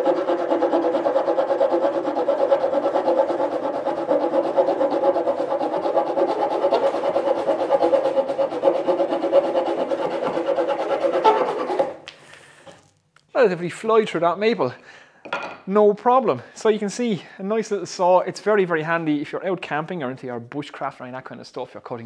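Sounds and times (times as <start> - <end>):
small saw cutting wood: 0.0 - 12.0.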